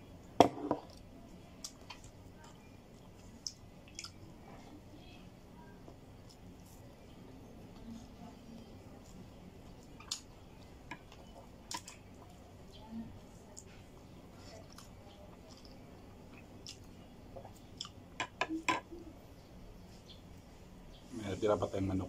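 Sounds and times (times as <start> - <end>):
person chewing: 2.9 - 4.2, 9.0 - 12.4, 14.4 - 18.2.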